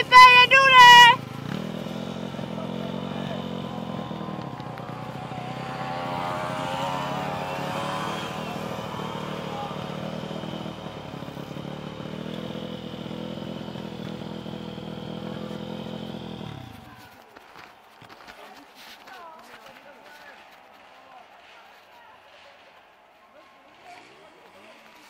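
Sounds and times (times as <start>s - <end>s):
dirt bike engines running: 0.0s - 25.0s
dirt bike revving past: 1.0s - 17.1s.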